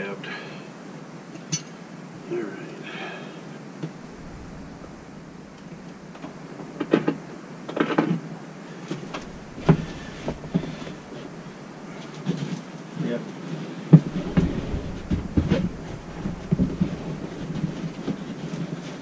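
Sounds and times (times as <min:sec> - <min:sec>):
knocks and clanks on subfloor: 0:09.1 - 0:11.8, 0:14.0 - 0:18.7.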